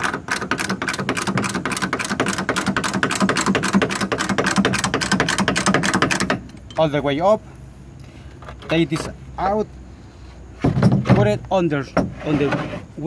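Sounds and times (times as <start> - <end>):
hydraulic jack pump clicks: 0.0 - 6.7.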